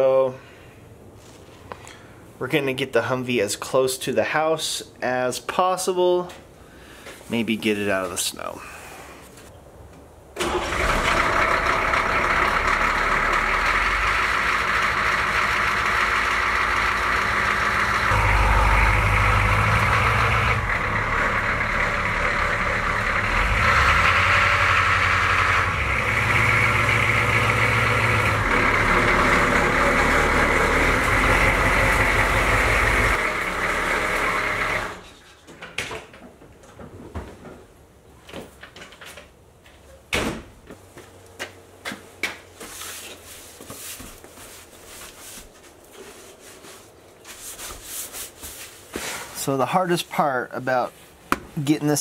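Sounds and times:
diesel engine running loudly: 10.7s - 35.0s.

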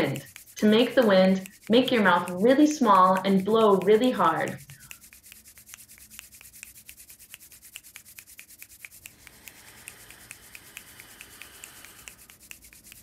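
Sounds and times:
fingers snapping: 0.0s - 13.0s
hands rubbing together: 0.0s - 13.0s
breath hissing through lips: 6.0s - 13.0s.

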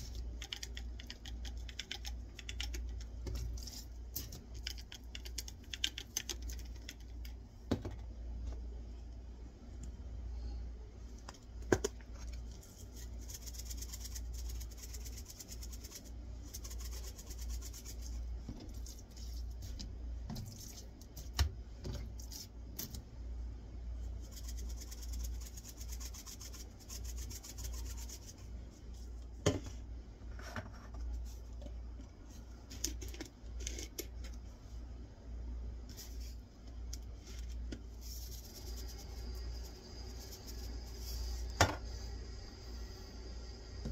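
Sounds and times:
low steady hum: 0.0s - 43.9s
shakers clicking and tapping: 0.1s - 7.4s
soft rubbing on meat: 35.9s - 41.5s.

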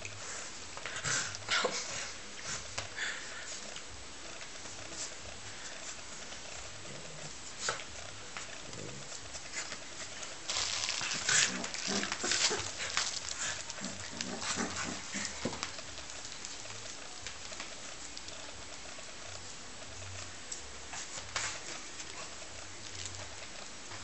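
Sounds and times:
dogs scuffling and snuffling: 0.0s - 24.0s
dogs growling: 0.8s - 17.1s.

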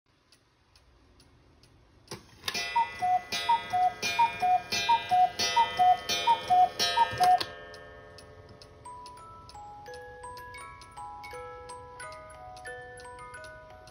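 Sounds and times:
clock ticking faintly: 0.1s - 13.9s
cuckoo mechanism click: 2.1s - 10.0s
cuckoo clock two-note calls: 2.5s - 7.6s.

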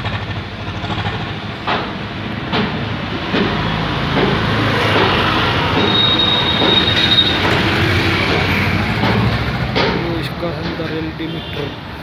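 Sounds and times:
engine humming: 0.0s - 12.0s
sharp clank: 1.6s - 11.6s.

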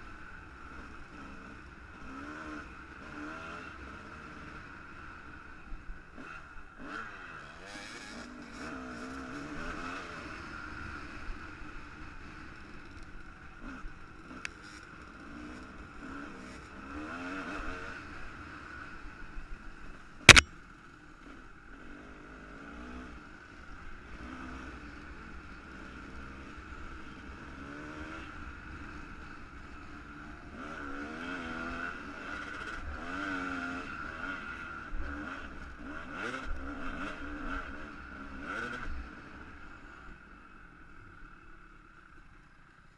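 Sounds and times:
sharp crack: 20.2s - 20.5s
dirt bike engine revving: 20.3s - 20.5s, 30.2s - 39.0s.

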